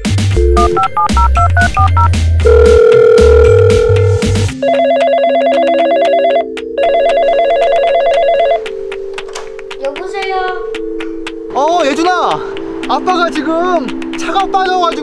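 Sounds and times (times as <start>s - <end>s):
background music with a beat: 0.0s - 15.0s
phone keypad beeps: 0.4s - 4.0s.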